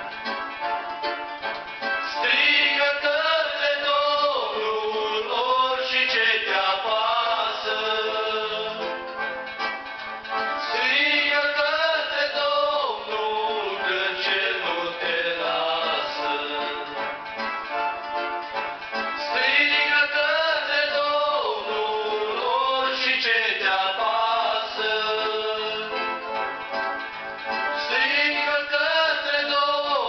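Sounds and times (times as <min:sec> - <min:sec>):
electronic keyboard accompaniment: 0:00.0 - 0:30.0
man singing into a microphone: 0:02.1 - 0:09.1, 0:10.6 - 0:17.1, 0:19.2 - 0:26.2, 0:27.8 - 0:30.0.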